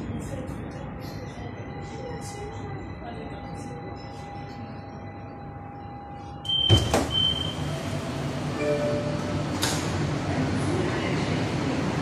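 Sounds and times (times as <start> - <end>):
high beeps: 6.4 - 7.6
train doors opening: 6.4 - 10.4.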